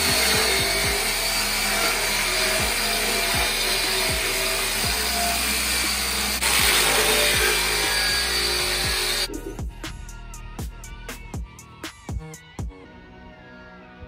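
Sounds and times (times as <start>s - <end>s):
power tool grinding steel: 0.0s - 9.6s
music with thudding beat: 0.0s - 12.8s.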